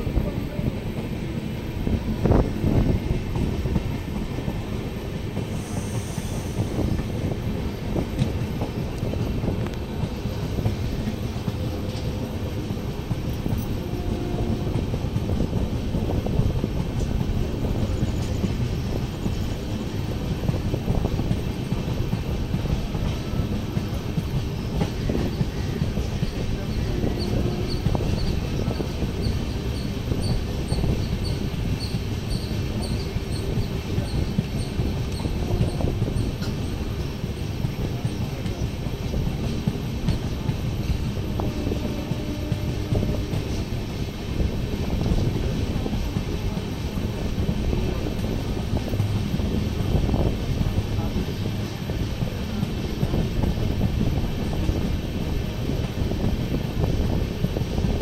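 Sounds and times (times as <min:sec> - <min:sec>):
train wheels on rails: 0:00.0 - 0:58.0.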